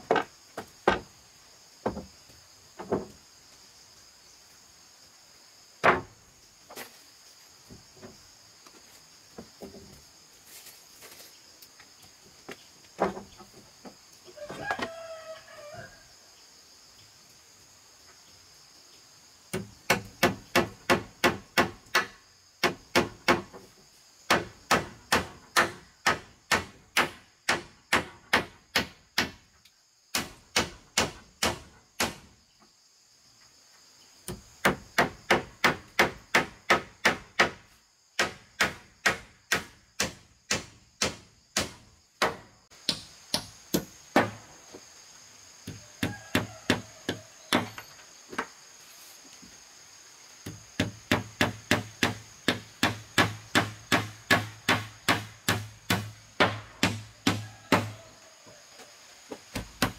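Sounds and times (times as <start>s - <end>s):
insects buzzing: 0.0s - 59.9s
hand tool striking hard: 50.8s - 57.9s.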